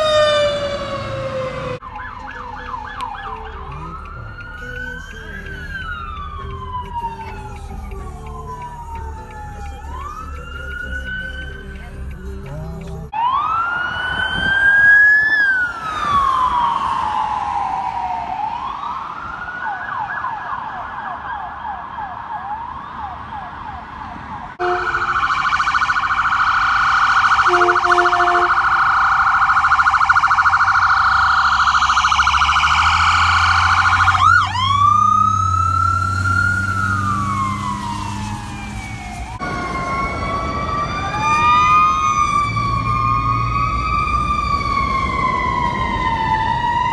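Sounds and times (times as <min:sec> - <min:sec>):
emergency vehicle sirens: 0:00.0 - 0:46.9
vehicle horn blasts: 0:24.6 - 0:25.1, 0:27.4 - 0:28.6.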